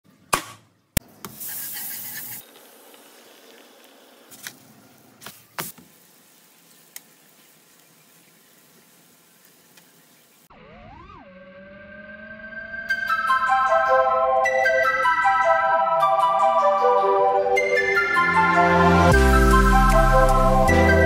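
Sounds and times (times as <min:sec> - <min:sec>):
batter sizzling in oil: 0:05.6 - 0:10.5.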